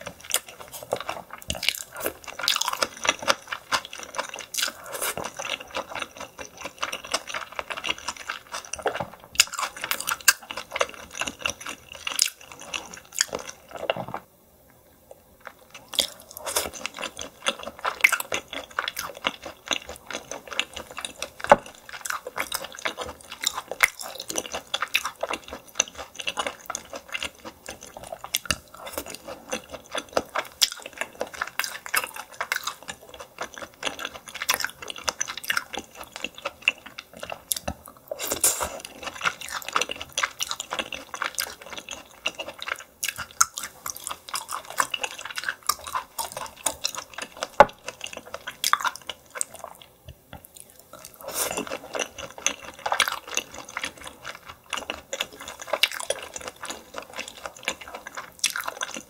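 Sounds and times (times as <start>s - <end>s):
wet chewing and smacking: 0.0s - 14.3s, 15.4s - 59.0s.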